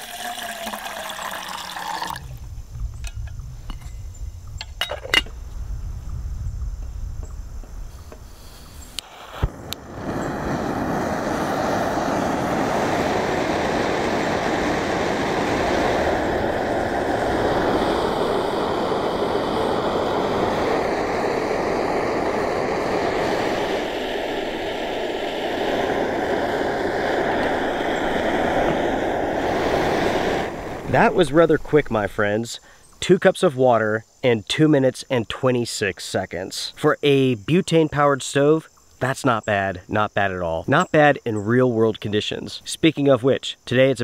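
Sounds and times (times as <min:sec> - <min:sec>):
gas burner rushing: 0:07.8 - 0:32.4.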